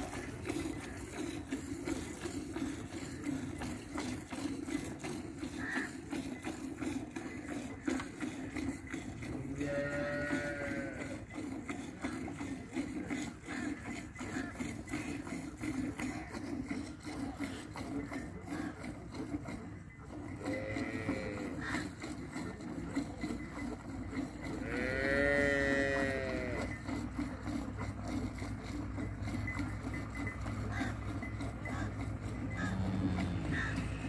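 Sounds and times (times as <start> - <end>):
cow mooing: 9.2 - 11.4, 20.3 - 22.0, 24.4 - 26.8, 29.5 - 34.0.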